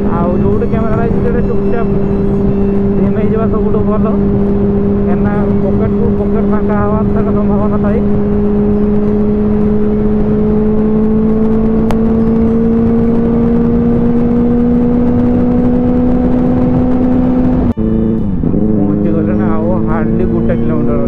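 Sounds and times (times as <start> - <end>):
motorcycle engine cruising: 0.0 - 21.0
wind and road noise: 0.0 - 21.0.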